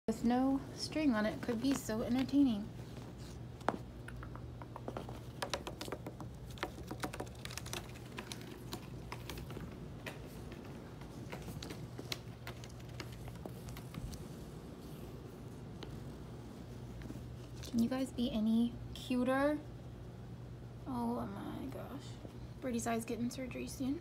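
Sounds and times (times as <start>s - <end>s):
faint low hum: 0.0s - 24.0s
kitten paws scratching and tapping: 1.2s - 14.4s.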